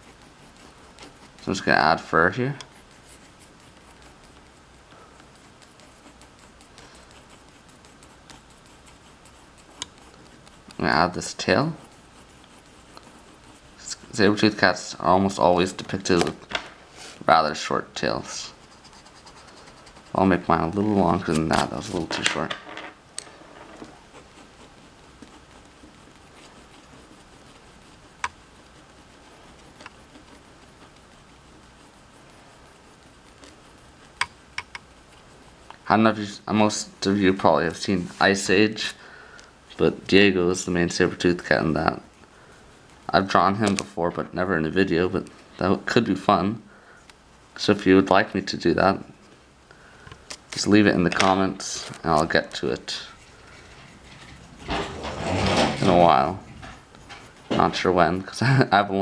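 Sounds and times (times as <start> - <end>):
pencil scratching on paper: 0.0 - 16.4, 17.0 - 22.2, 23.5 - 39.0, 39.7 - 46.3, 50.6 - 59.0.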